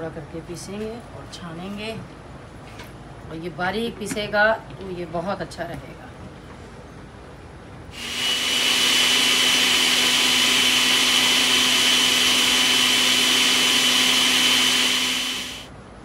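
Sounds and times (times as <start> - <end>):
blender running: 8.0 - 15.7.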